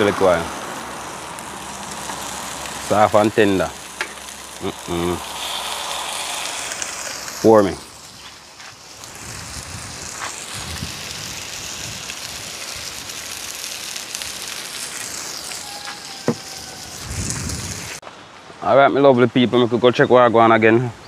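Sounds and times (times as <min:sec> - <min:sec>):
onions sizzling in a frying pan: 0:00.0 - 0:18.0
sharp pops from frying: 0:01.3 - 0:02.9, 0:03.8 - 0:04.6, 0:06.0 - 0:09.2.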